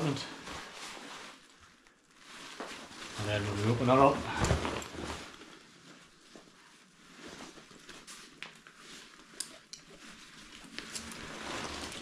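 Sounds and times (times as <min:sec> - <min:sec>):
fabric rustling: 0:00.0 - 0:12.0.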